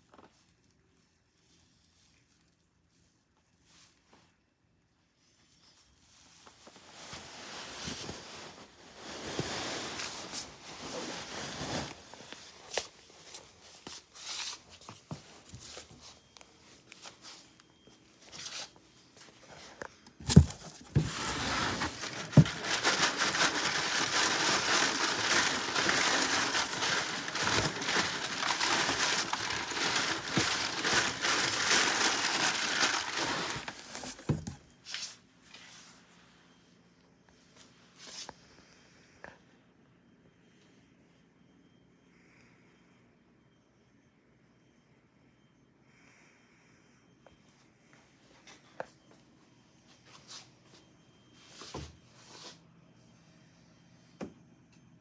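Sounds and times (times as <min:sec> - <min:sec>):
cardboard scraping and crinkling: 0:06.4 - 0:16.0, 0:19.4 - 0:35.2.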